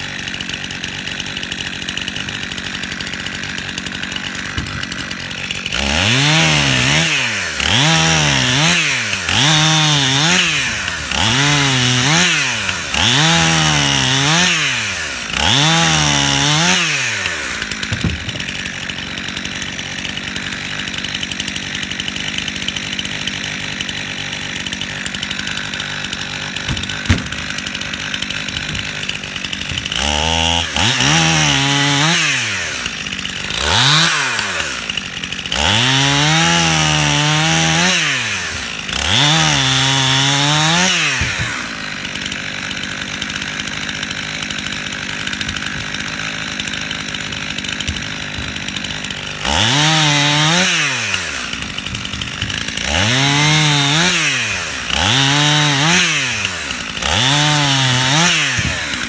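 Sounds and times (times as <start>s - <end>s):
chainsaw cutting wood: 0.0s - 59.0s.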